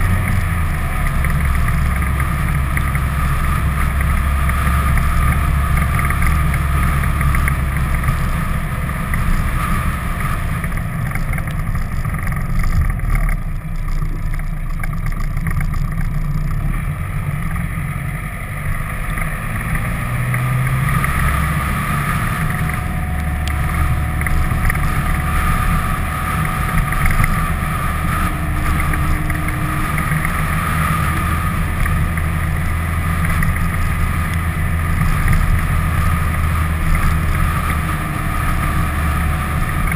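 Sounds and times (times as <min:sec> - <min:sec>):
road noise: 0:00.0 - 0:39.9
vehicle engine drone: 0:00.0 - 0:39.9
rushing wind: 0:16.6 - 0:39.9.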